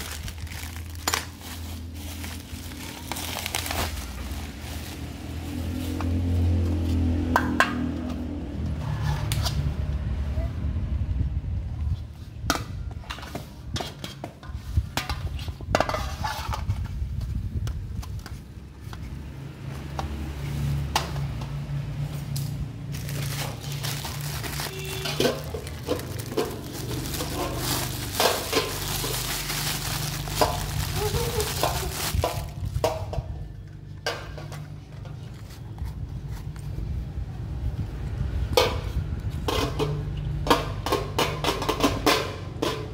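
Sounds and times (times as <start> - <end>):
plastic bag crinkling: 0.0 - 5.5, 22.9 - 32.8.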